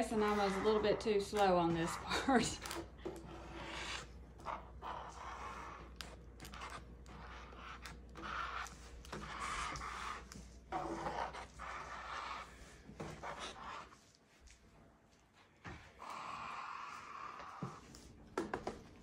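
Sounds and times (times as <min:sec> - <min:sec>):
plastic scraping through wet epoxy: 0:00.0 - 0:14.0.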